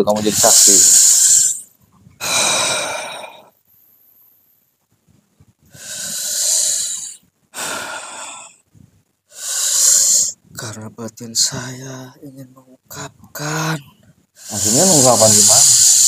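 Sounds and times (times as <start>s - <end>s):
man breathing out hard: 2.2s - 3.5s, 5.7s - 8.6s.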